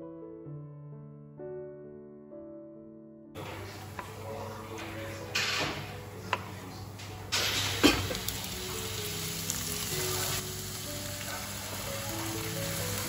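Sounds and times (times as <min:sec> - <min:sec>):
food sizzling loudly in pan: 0:07.3 - 0:13.0.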